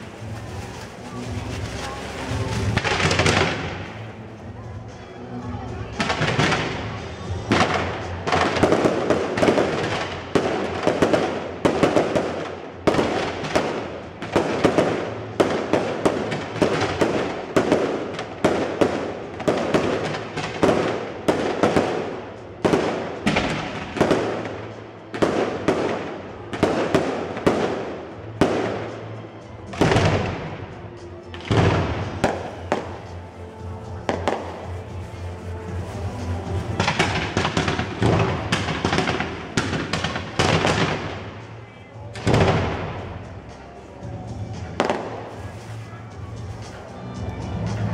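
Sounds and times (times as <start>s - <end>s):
firework rocket launches and bangs: 0.0s - 4.2s
crackling of sparkling rocket tails: 0.0s - 47.9s.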